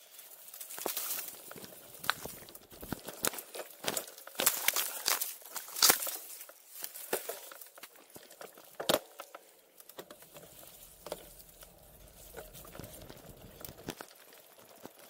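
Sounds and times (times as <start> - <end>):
bike tyres crunching over stones: 0.0 - 15.0
bike knocking and rattling: 0.6 - 5.0, 5.7 - 15.0
low steady hum: 1.2 - 3.6, 10.0 - 14.0.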